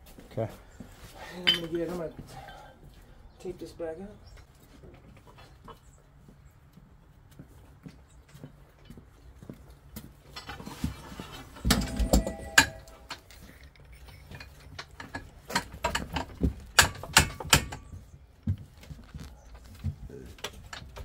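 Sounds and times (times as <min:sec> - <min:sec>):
metal pipe clanking: 0:11.6 - 0:13.3, 0:14.1 - 0:18.0.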